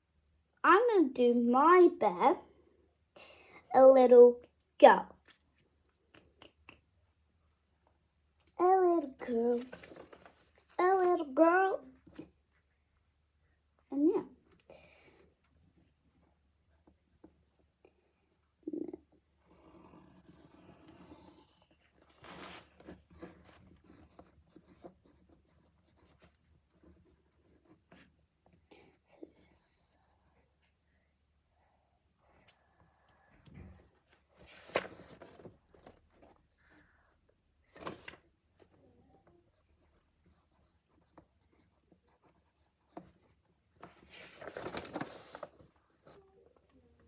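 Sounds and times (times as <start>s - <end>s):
drawing tool scratching paper: 19.4s - 28.0s.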